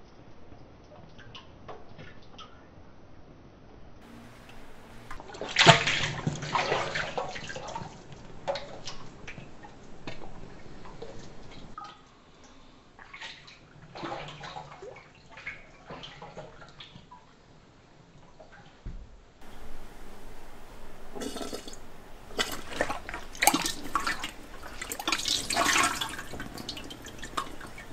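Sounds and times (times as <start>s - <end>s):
clay slip sloshing and splashing: 21.2s - 27.9s.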